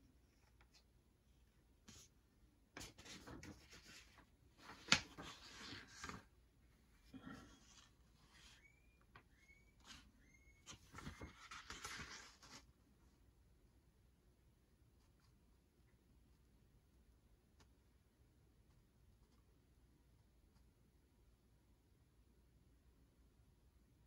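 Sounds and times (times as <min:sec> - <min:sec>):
paper rustling: 0:02.8 - 0:06.3, 0:09.8 - 0:12.7.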